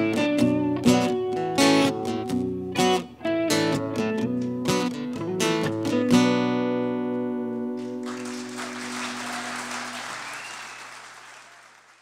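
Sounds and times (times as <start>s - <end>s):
audience applause: 7.8s - 12.0s.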